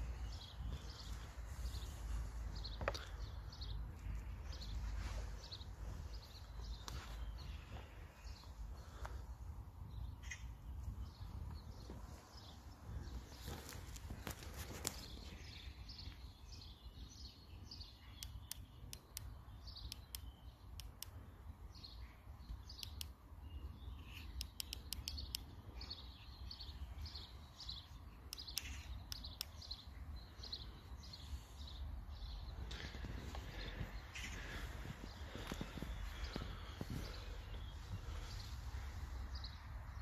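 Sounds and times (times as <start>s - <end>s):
small birds chirping: 0.0s - 40.0s
sharp clicks: 18.1s - 21.3s, 22.5s - 23.3s, 24.0s - 25.6s, 28.3s - 29.8s.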